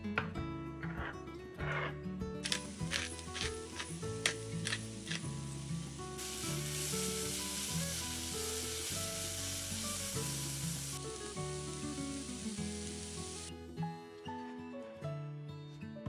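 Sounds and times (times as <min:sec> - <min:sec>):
soft background music: 0:00.0 - 0:16.0
vegetables sizzling in a pan: 0:02.5 - 0:13.5.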